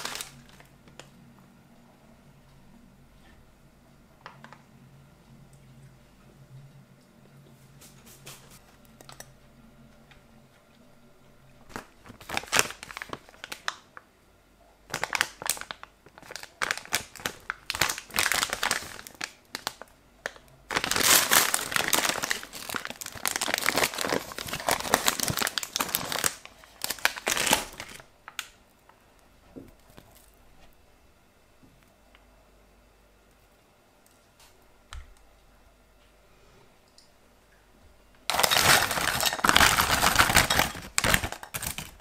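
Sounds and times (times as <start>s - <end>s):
plastic candy bag crinkling: 0.0s - 1.1s, 11.7s - 14.0s, 14.9s - 28.6s, 38.3s - 42.0s.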